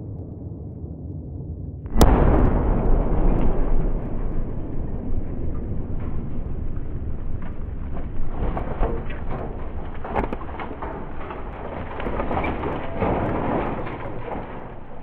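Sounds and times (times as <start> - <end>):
steady low noise: 0.0 - 11.6
debris crashing onto ground: 1.9 - 15.0.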